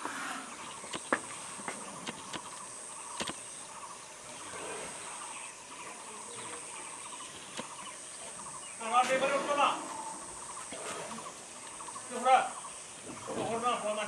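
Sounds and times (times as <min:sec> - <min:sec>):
high-pitched insect hum: 0:00.0 - 0:14.0
faint clicks or snaps: 0:03.2 - 0:03.4.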